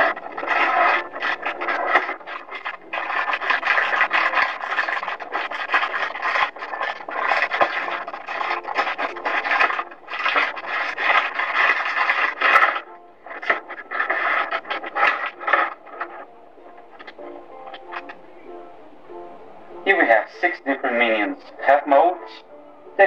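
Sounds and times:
plastic wrapping crinkling: 0.0s - 18.2s.

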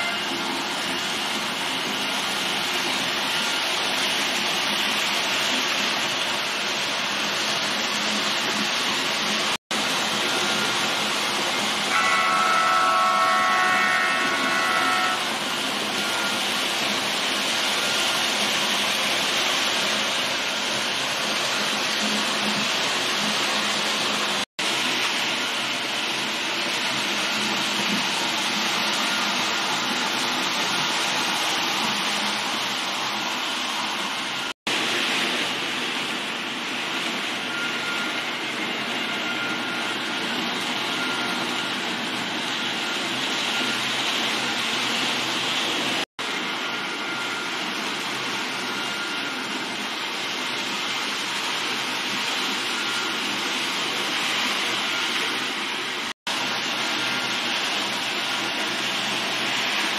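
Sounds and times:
model train running on track: 0.0s - 59.9s.

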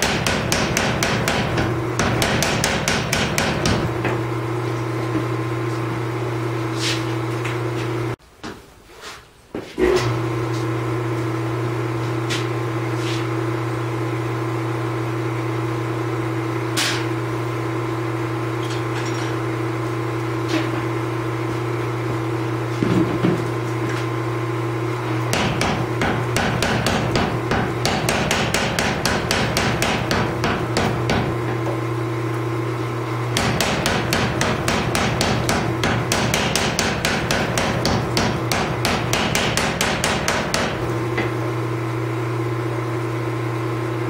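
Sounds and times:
power hammer blows on metal: 0.0s - 4.1s, 25.3s - 31.5s, 33.4s - 41.0s
shop machinery humming: 0.0s - 8.2s, 9.7s - 44.0s.

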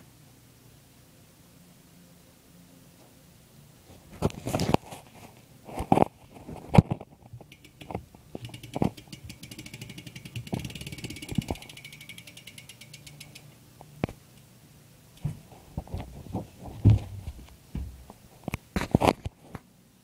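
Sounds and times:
bicycle hub clicking: 7.3s - 13.6s.

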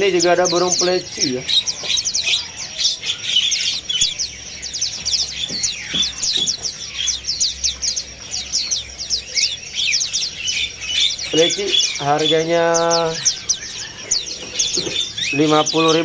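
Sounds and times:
birds chirping: 0.0s - 16.0s.

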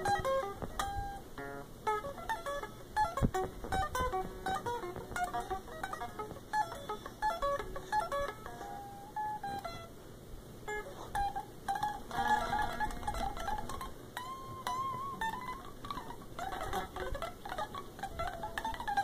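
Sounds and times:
unplugged electric guitar shredding: 0.0s - 10.0s, 10.7s - 19.0s.

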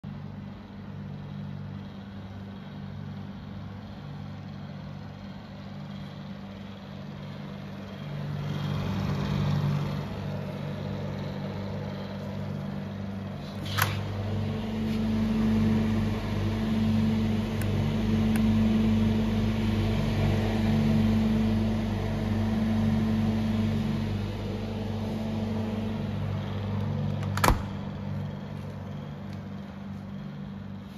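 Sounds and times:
refrigeration unit humming: 0.0s - 30.9s
refrigerator door clicking: 27.0s - 28.1s.

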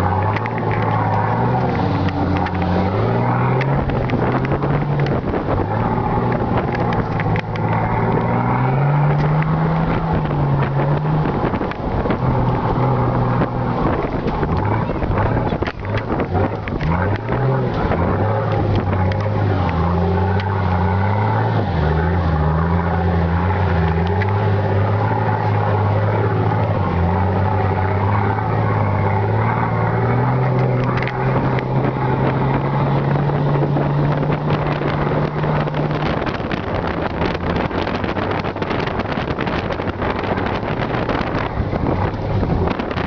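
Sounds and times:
diesel exhaust while driving: 0.0s - 43.0s.

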